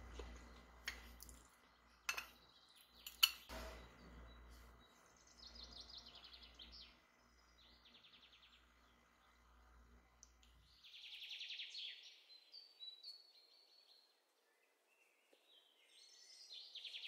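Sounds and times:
kitchenware clinks: 2.1 - 2.4, 3.0 - 3.9.

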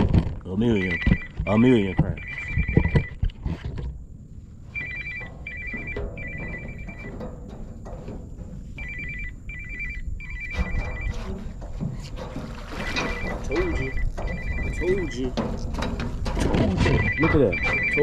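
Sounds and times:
wind rumbling on microphone: 0.0 - 18.0
phone ringtone beeping: 0.7 - 3.2, 4.8 - 7.2, 8.8 - 11.2, 12.8 - 15.3, 16.8 - 18.0.

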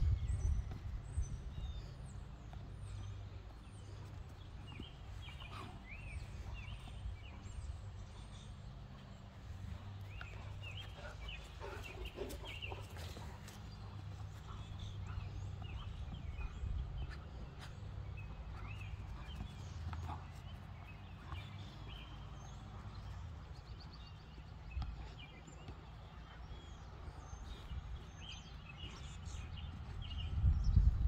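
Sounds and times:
small birds chirping: 0.0 - 31.0
steady low rumble: 0.0 - 31.0.

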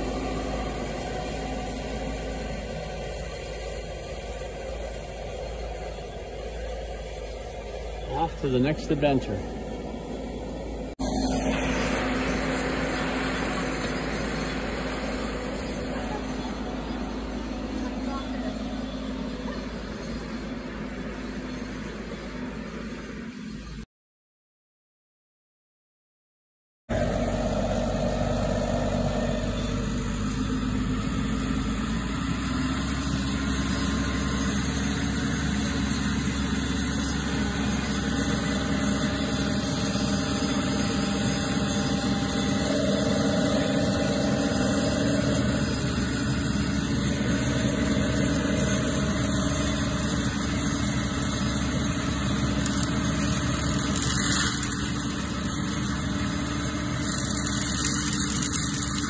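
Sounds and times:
mulcher engine running: 0.0 - 23.8, 26.9 - 59.0.

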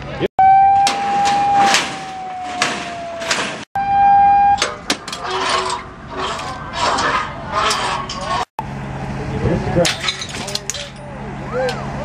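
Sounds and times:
horn blasts: 0.4 - 2.4, 3.8 - 4.8
voices: 4.7 - 12.0.

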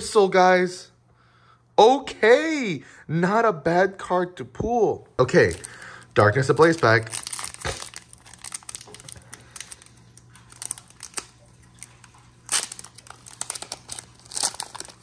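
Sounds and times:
foil wrapper crinkling and tearing: 5.2 - 15.0.

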